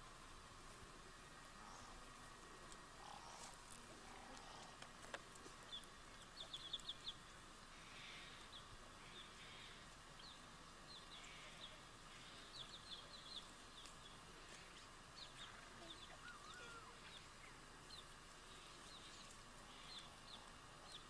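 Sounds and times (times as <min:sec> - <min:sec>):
soft steady hiss: 0:00.0 - 0:21.0
faint bird chirping: 0:01.1 - 0:21.0
wavering lower bird call: 0:15.6 - 0:17.3.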